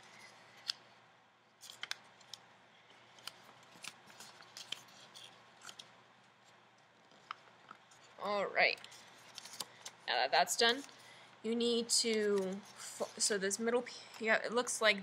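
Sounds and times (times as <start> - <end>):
paper crackling and crinkling: 1.6 - 11.1.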